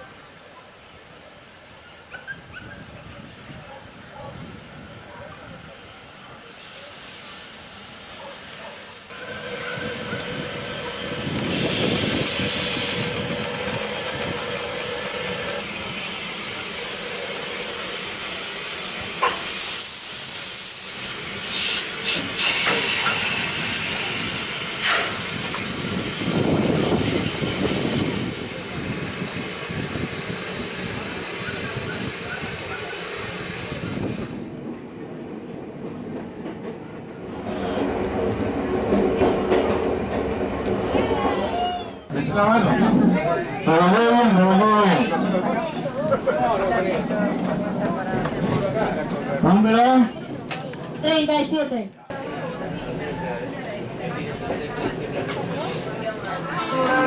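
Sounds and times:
train running: 2.6s - 57.0s
steam locomotive hissing: 5.6s - 34.6s, 52.3s - 57.0s.

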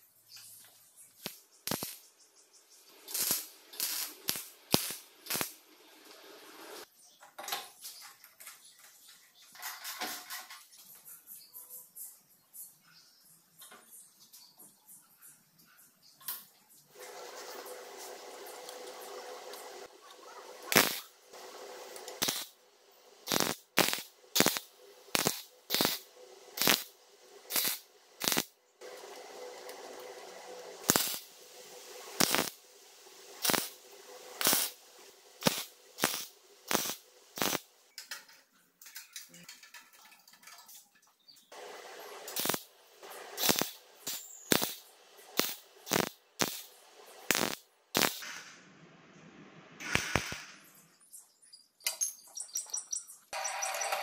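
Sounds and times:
arc welder tack crackles: 1.2s - 2.0s, 3.0s - 5.6s, 19.5s - 21.1s, 21.9s - 22.5s, 23.3s - 26.9s, 27.5s - 28.5s, 30.9s - 31.3s, 32.2s - 32.6s, 33.4s - 33.8s, 34.4s - 34.8s, 35.4s - 38.3s, 42.3s - 46.7s, 47.3s - 48.4s
welder hum: 1.2s - 2.0s, 2.8s - 6.8s, 17.0s - 37.9s, 41.6s - 48.8s, 49.8s - 50.7s.

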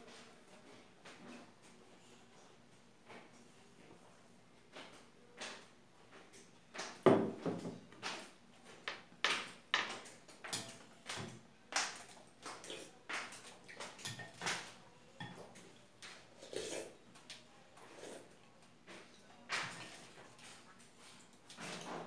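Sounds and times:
noodles being slurped and chewed: 16.2s - 17.0s.

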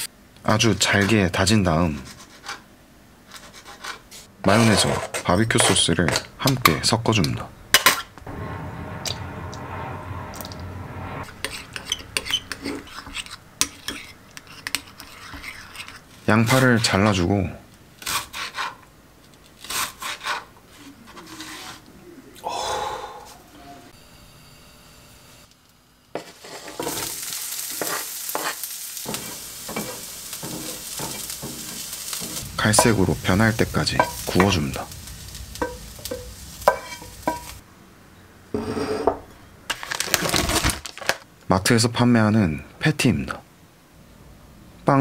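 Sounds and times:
wooden spatula scraping a pan: 1.9s - 2.6s, 3.3s - 6.2s, 11.2s - 16.9s, 18.0s - 18.8s, 19.7s - 21.9s, 26.2s - 37.6s, 38.6s - 39.2s
low steady hum: 6.2s - 13.7s, 29.1s - 38.5s
onions sizzling in a frying pan: 25.7s - 37.6s.

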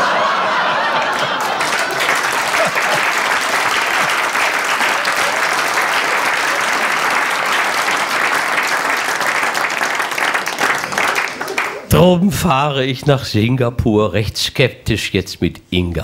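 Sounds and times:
studio audience applauding: 0.0s - 12.0s.

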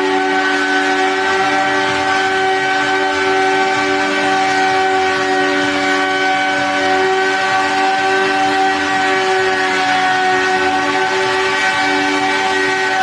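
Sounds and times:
hoverbike propellers whining: 0.0s - 13.0s.

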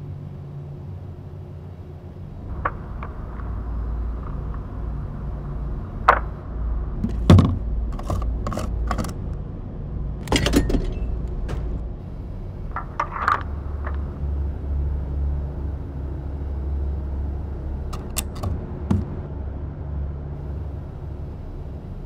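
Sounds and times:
low steady hum: 0.0s - 22.0s
fuel filler door clicking: 10.2s - 11.8s.

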